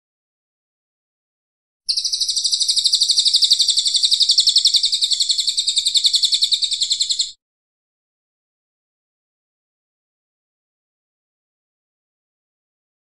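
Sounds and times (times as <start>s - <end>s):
songbird rapid trill: 1.9s - 7.4s.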